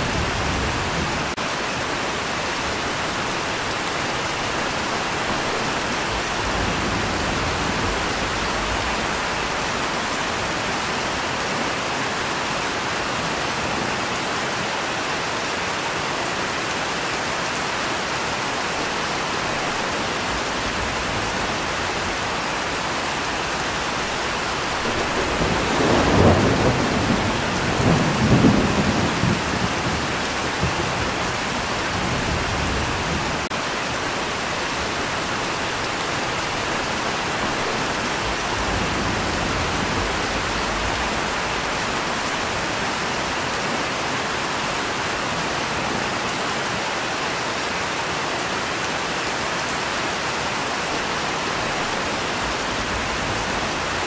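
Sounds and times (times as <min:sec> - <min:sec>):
steady rain falling: 0:00.0 - 0:54.0
thunder rumbling: 0:02.8 - 0:11.3, 0:19.5 - 0:33.5.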